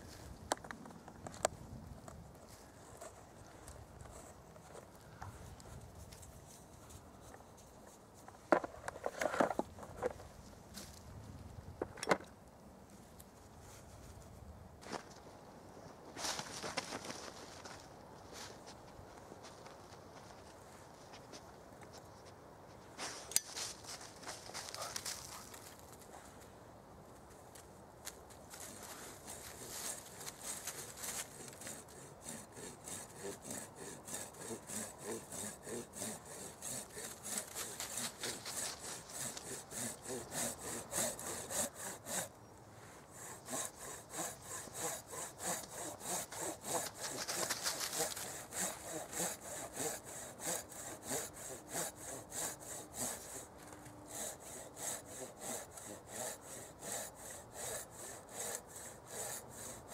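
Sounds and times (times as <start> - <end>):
knife shaving wood: 28.0 - 42.3, 43.2 - 53.5, 54.1 - 59.9.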